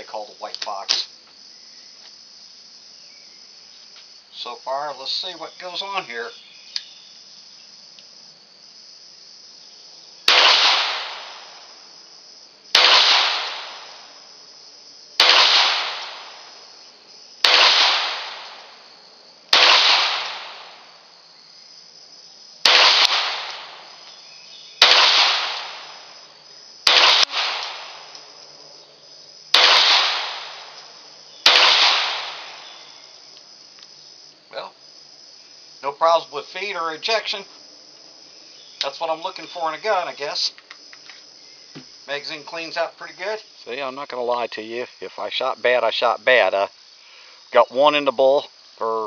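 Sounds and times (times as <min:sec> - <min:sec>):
faint insect drone: 0:00.0 - 0:49.0
pistol shots: 0:10.3 - 0:11.6, 0:12.7 - 0:14.1, 0:15.2 - 0:16.5, 0:17.4 - 0:18.8, 0:19.5 - 0:20.9, 0:22.6 - 0:24.0, 0:24.8 - 0:26.1, 0:26.8 - 0:28.2, 0:29.5 - 0:32.9.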